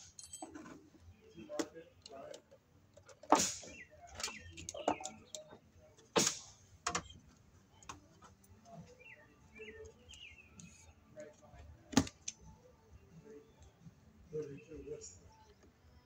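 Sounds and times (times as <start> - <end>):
small birds chirping: 3.6 - 11.6.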